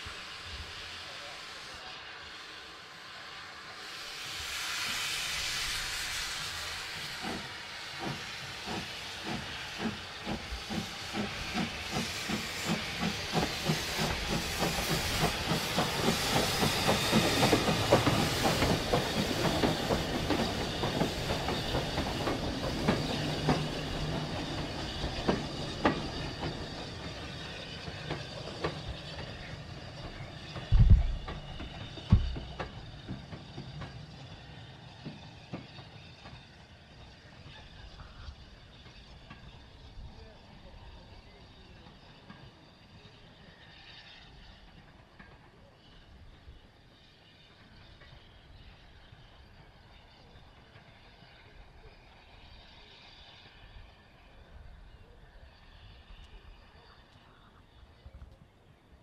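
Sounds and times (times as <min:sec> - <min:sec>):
steam engine chuffing: 0:00.0 - 0:46.8
steam hissing: 0:00.0 - 0:58.1
low thump: 0:30.7 - 0:32.7.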